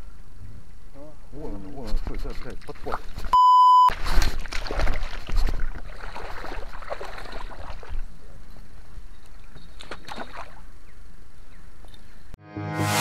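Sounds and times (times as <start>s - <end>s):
water sloshing and splashing: 2.0s - 8.2s, 9.3s - 10.7s.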